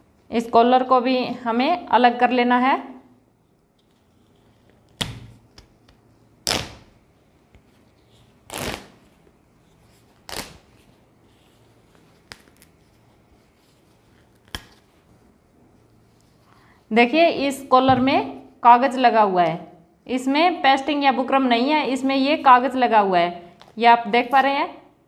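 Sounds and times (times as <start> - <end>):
thread and cloth ripping: 6.4 - 7.0, 8.4 - 9.1, 10.1 - 10.8, 14.0 - 14.9
fabric rustling: 7.2 - 16.8.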